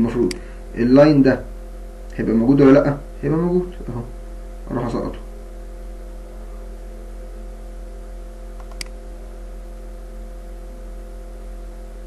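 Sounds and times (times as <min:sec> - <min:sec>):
electrical mains hum: 0:00.0 - 0:12.0
computer mouse click: 0:08.6 - 0:09.0.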